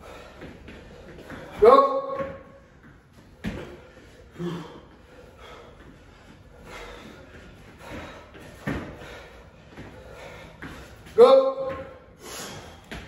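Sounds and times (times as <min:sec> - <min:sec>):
heavy breathing: 0:00.0 - 0:01.6, 0:03.2 - 0:11.2, 0:11.8 - 0:13.0.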